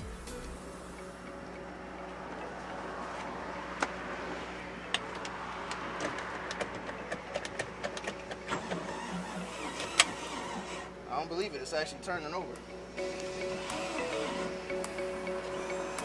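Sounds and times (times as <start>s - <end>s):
engine starter cranking: 6.0s - 11.0s
sharp irregular clicks: 12.5s - 16.0s.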